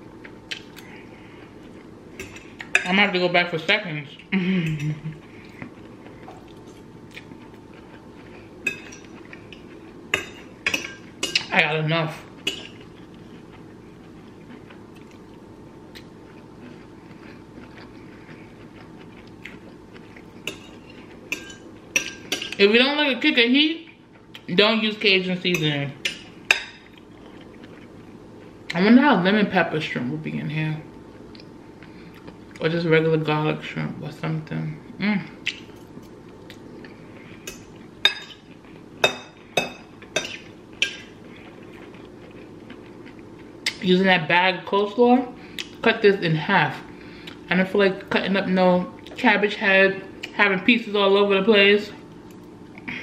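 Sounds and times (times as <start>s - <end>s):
low steady background hum: 0.0s - 53.0s
person chewing food: 0.1s - 2.8s, 4.2s - 11.5s, 12.3s - 22.6s, 26.0s - 28.8s, 31.1s - 32.6s, 35.4s - 43.8s, 45.5s - 45.8s, 46.9s - 47.5s
soft mouth clicks: 35.4s - 35.7s.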